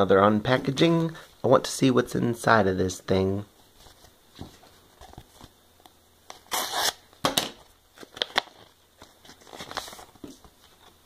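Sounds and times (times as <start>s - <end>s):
envelope tearing open: 6.3s - 7.1s
paper rustling: 8.0s - 11.0s.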